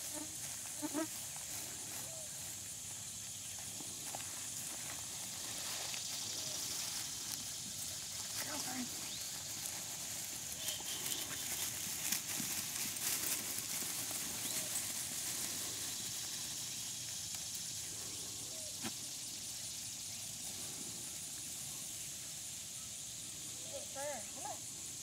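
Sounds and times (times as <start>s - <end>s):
footsteps through grass: 0.0s - 17.8s
steady high hiss: 0.0s - 25.0s.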